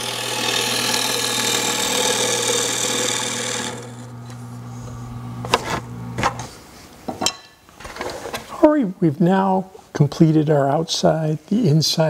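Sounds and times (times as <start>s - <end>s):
gouge cutting wood on lathe: 0.0s - 4.4s
lathe motor hum: 0.0s - 6.4s.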